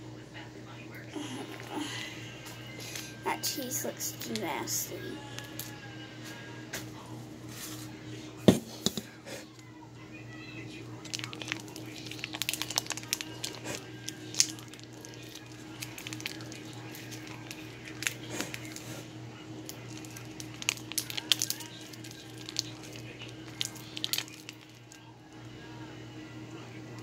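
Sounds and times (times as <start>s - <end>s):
steady low hum: 0.0s - 27.0s
foil pouch crinkling and squishing: 11.0s - 18.9s, 19.6s - 25.0s.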